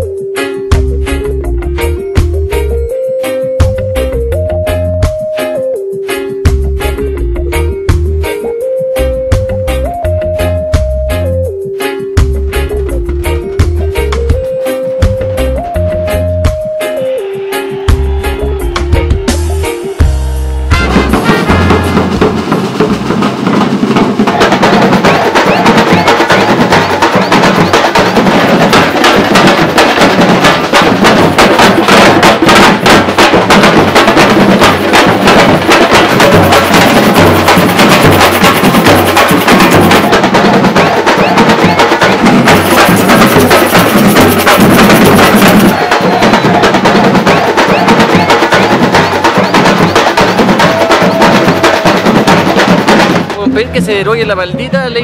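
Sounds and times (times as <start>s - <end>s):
percussion group drumming: 20.7s - 55.0s.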